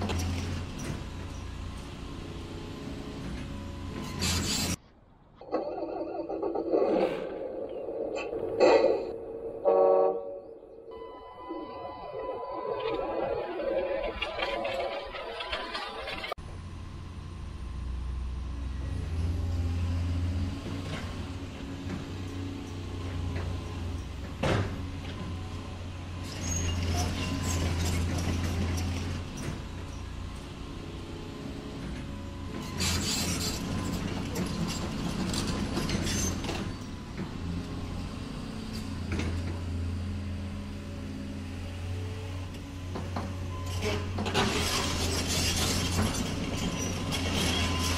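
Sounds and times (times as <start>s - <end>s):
model excavator motors humming: 11.0s - 47.9s.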